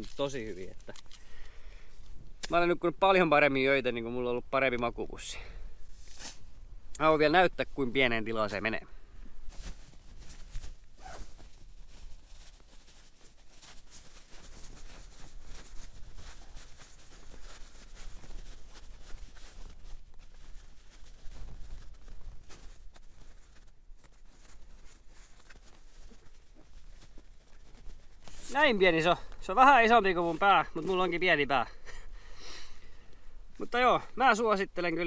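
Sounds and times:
nylon sleeping bag rustling: 9.3 - 31.7.

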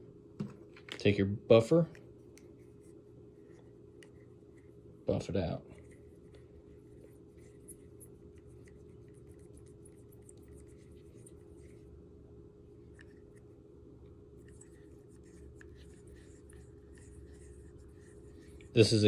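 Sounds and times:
steady low hum: 0.0 - 19.0
scratchy rubbing on glass: 14.4 - 19.0.

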